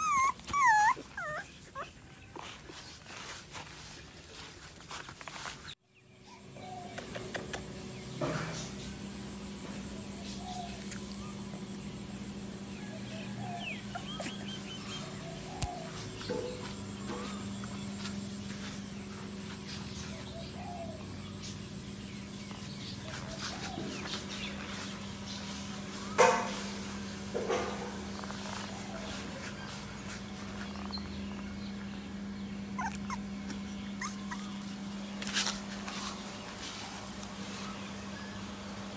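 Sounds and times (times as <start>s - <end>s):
puppy whimpering squeaks: 0.0s - 2.1s, 13.6s - 15.0s, 32.8s - 34.7s
steady low hum: 0.0s - 38.9s
rustling in grass: 2.4s - 5.8s.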